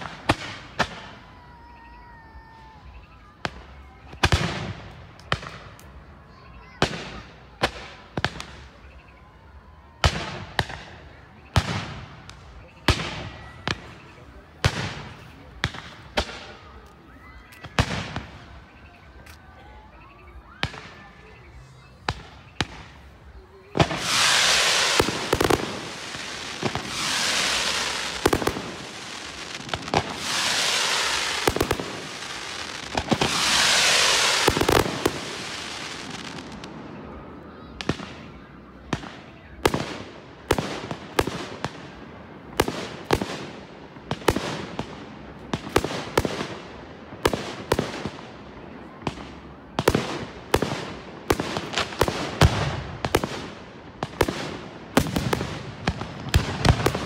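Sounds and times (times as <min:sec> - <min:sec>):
fireworks bangs with echo: 0:00.0 - 0:57.0
fireworks hissing and crackling: 0:00.0 - 0:57.0.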